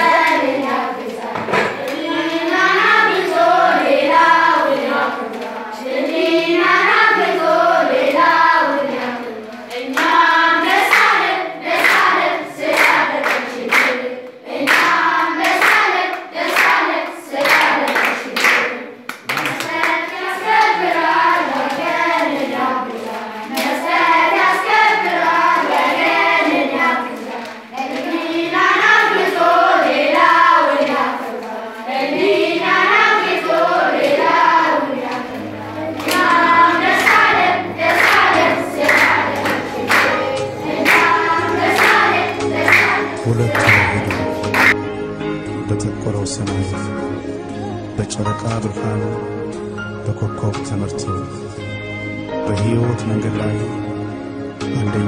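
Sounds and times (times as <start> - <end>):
children clapping in time: 0.0 - 3.5, 4.1 - 31.2, 31.9 - 44.8
children singing: 0.0 - 44.9.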